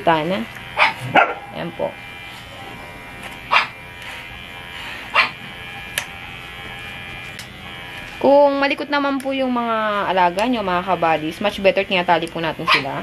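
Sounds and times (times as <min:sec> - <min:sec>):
electric pet clipper humming: 0:00.0 - 0:13.0.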